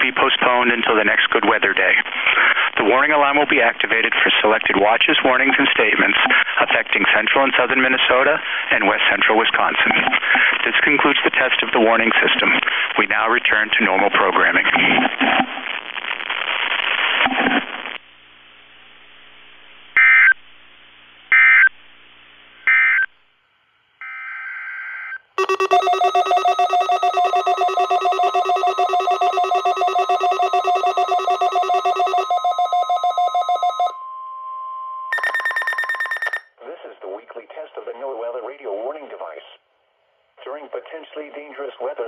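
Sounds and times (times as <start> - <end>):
digital data bursts: 25.4 - 33.9
alert radios multi-tone beeping: 25.4 - 34.0, 35.1 - 36.5
steady alarm tone: 25.4 - 34.0, 35.1 - 36.5.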